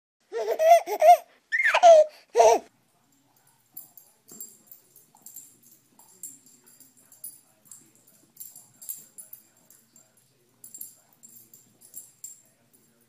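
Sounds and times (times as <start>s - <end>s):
high-pitched laughter: 0.4s - 2.7s.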